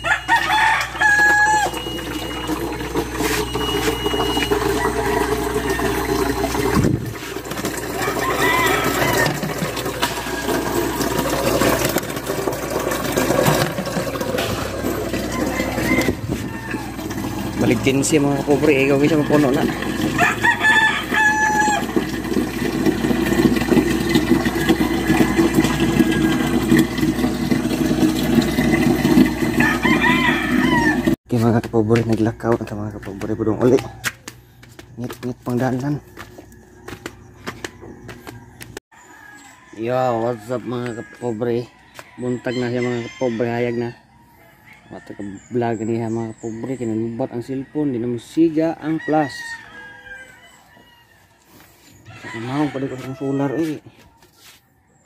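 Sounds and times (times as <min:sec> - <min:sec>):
rooster crowing: 0:00.0 - 0:02.0, 0:04.6 - 0:06.6, 0:07.8 - 0:11.1, 0:14.5 - 0:22.1, 0:24.5 - 0:26.6, 0:29.4 - 0:31.2, 0:32.7 - 0:34.4, 0:35.7 - 0:45.6, 0:46.6 - 0:55.0
water running into plastic jug: 0:00.0 - 0:34.0.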